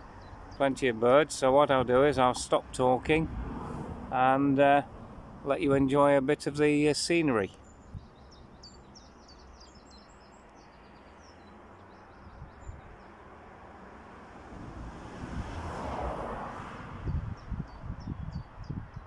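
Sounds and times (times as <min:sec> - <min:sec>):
road traffic hum: 0:00.0 - 0:19.0
vehicle passing: 0:00.7 - 0:06.3, 0:13.1 - 0:17.7
small birds chirping: 0:07.2 - 0:13.3, 0:17.0 - 0:19.0.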